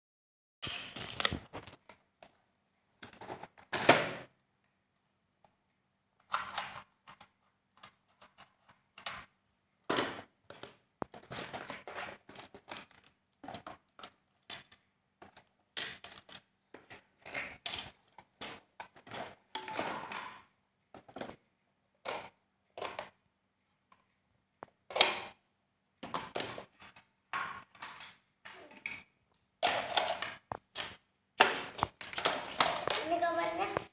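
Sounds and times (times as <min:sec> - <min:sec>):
plastic toy pieces clattering: 0:00.6 - 0:01.8, 0:10.0 - 0:21.3, 0:26.2 - 0:33.3.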